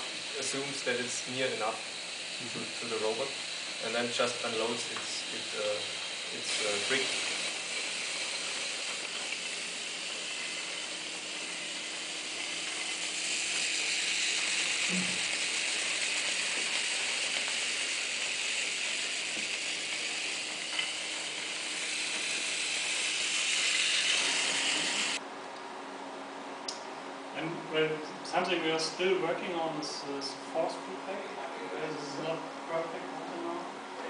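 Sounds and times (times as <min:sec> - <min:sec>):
small motors whirring: 0:00.0 - 0:25.2.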